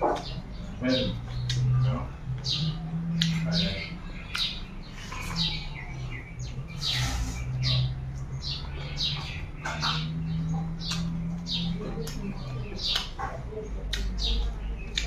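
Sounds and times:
small birds chirping: 0:00.0 - 0:15.0
chewing and mouth sounds: 0:01.1 - 0:01.8.

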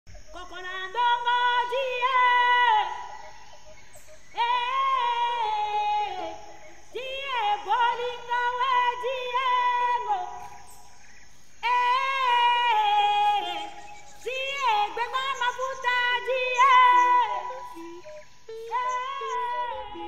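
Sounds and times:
woman singing long held notes: 0:00.1 - 0:10.9, 0:11.6 - 0:20.0.

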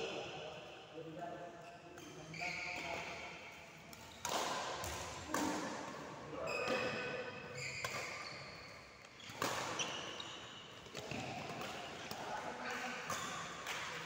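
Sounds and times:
shoes squeaking on court floor: 0:01.6 - 0:03.2, 0:06.4 - 0:14.0
racket hitting shuttlecock: 0:03.9 - 0:06.0, 0:07.8 - 0:08.3, 0:09.0 - 0:10.2.

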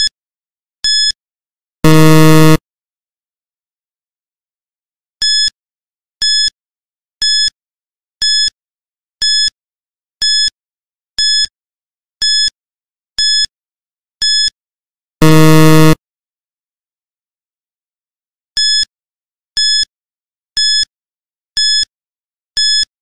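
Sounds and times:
low buzzer: 0:01.8 - 0:02.6, 0:15.2 - 0:16.0
high electronic beeps: 0:01.9 - 0:02.6, 0:15.2 - 0:16.0.

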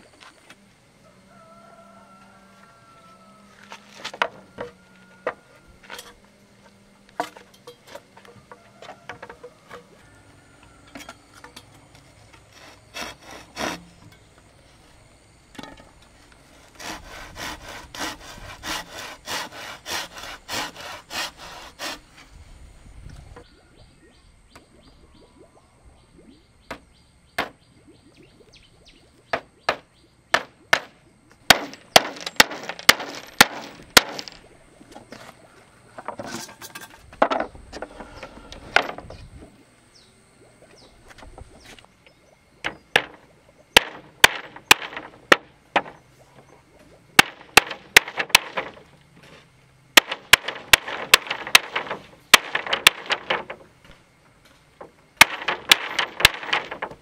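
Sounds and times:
scraping and rustling: 0:31.6 - 0:39.3, 0:47.8 - 0:54.0.

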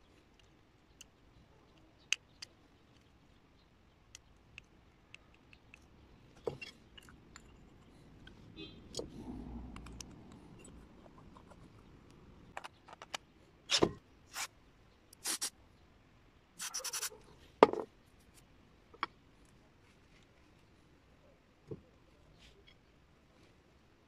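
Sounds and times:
clicks and knocks of small parts: 0:12.5 - 0:13.3.

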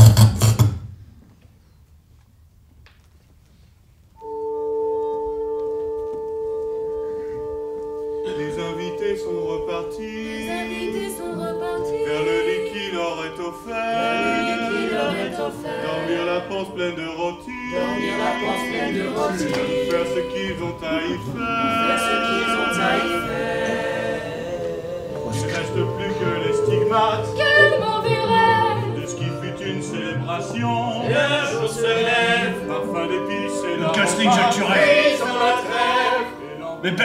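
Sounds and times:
voices singing together: 0:08.4 - 0:37.0
sustained chord: 0:17.4 - 0:36.7.

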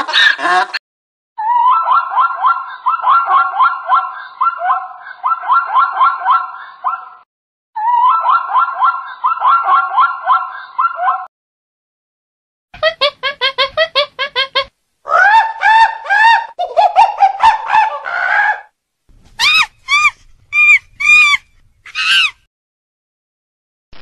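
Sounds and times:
monkey calling: 0:15.1 - 0:18.7, 0:19.4 - 0:22.4.

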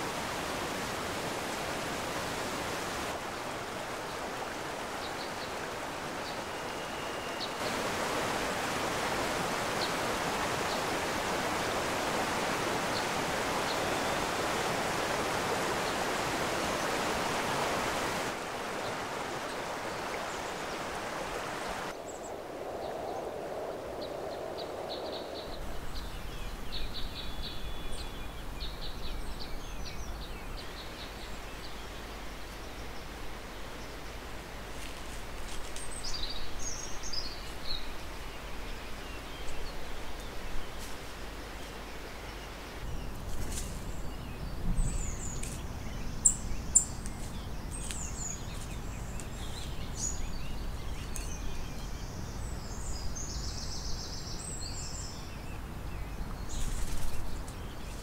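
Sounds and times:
river water rushing: 0:00.0 - 0:22.0
small birds chirping: 0:09.5 - 0:23.1, 0:34.7 - 0:58.0.

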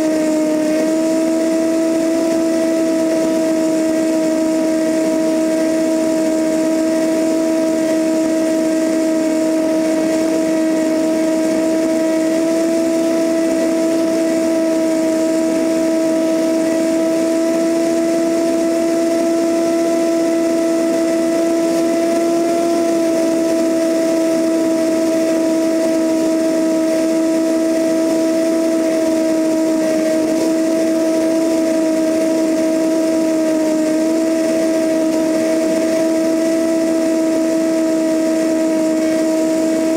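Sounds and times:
light aircraft engine droning: 0:00.0 - 0:39.9
rushing airflow noise: 0:00.0 - 0:39.9.

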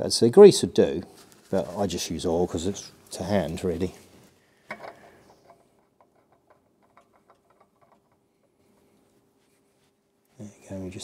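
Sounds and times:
quiet steady hum: 0:00.0 - 0:11.0
oil filter ticking and scraping: 0:04.7 - 0:08.8.

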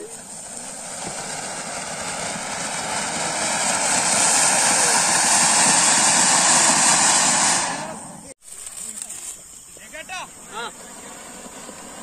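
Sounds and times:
firework fountain hissing: 0:00.0 - 0:12.0.

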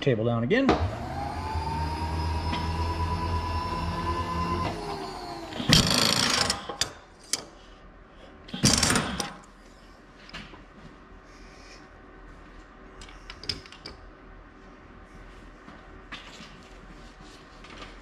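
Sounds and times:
electric motor whining: 0:00.8 - 0:06.8.

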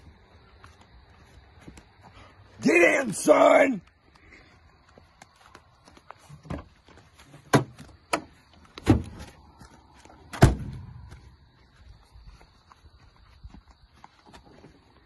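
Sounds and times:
knocks and bumps in car: 0:06.4 - 0:09.3
car door slamming: 0:10.4 - 0:10.8.

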